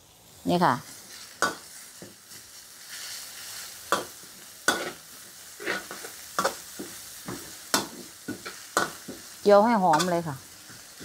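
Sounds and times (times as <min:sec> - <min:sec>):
food sizzling in hot fat: 0:00.0 - 0:11.0
metal spatula scraping wok: 0:00.8 - 0:11.0.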